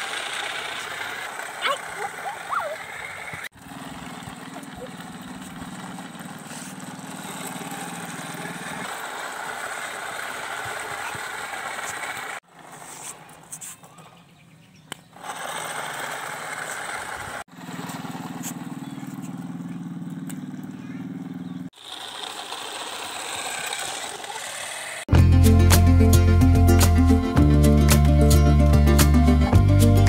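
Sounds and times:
small toy motor whirring: 8.8 - 13.3, 15.1 - 17.5, 21.7 - 25.1.

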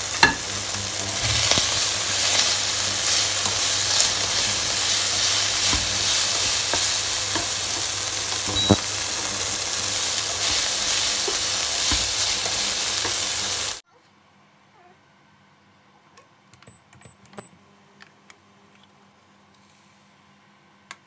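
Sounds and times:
chicken sizzling in a wok: 0.0 - 13.8
spatula scraping a wok: 0.2 - 13.5.

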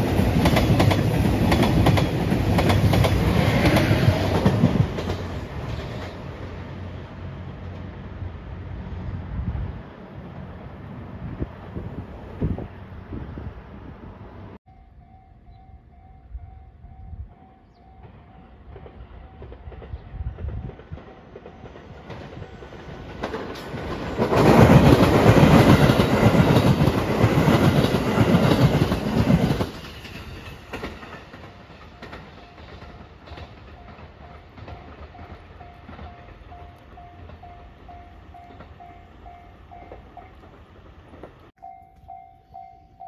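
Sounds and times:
train wheels clattering over rail joints: 0.0 - 6.4, 18.0 - 36.6
electric train passing: 0.0 - 43.0
level crossing bell dinging: 41.6 - 43.0.

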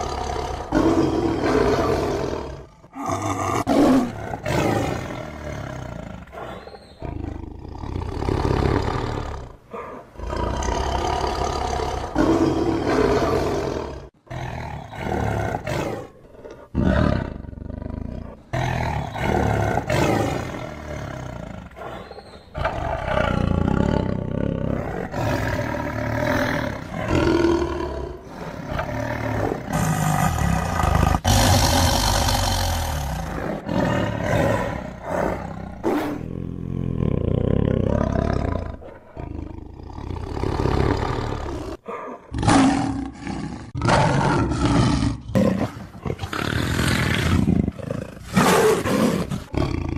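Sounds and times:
tiger roaring: 0.0 - 49.9.

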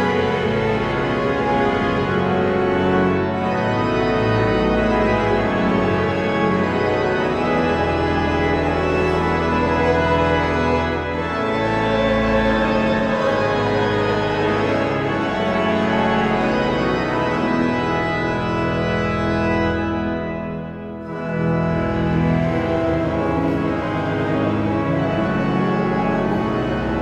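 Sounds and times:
pipe organ playing hymn: 0.0 - 27.0.

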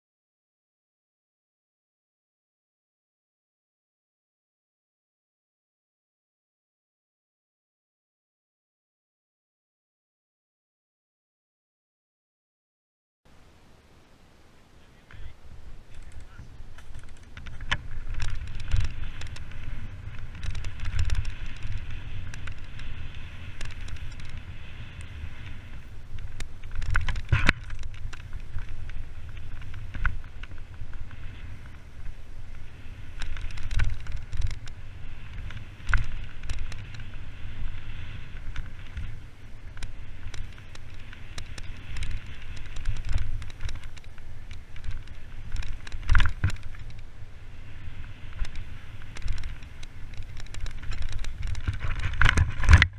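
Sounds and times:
wind rumble on microphone: 13.3 - 52.9
tyres on dirt: 14.4 - 52.9
bike clattering and rattling: 15.1 - 52.9
bike knocking over bumps: 25.4 - 31.8.

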